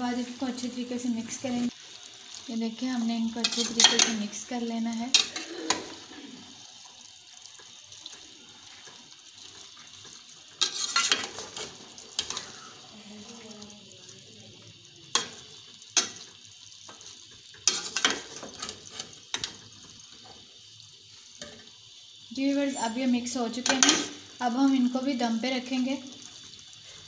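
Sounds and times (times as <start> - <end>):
soft sizzle: 0.0 - 27.0
metal spoon scraping pot: 3.4 - 4.2, 10.6 - 12.7, 17.6 - 19.5.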